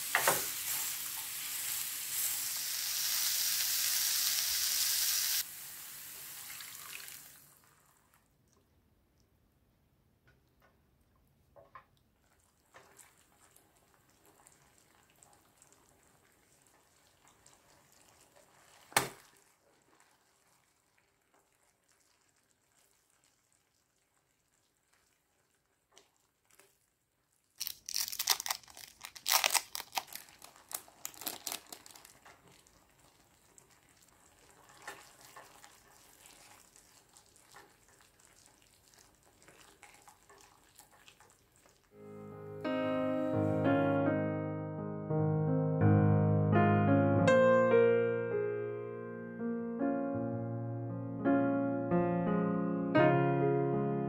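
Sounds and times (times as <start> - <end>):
spatula stirring and scraping pan: 33.6 - 41.8.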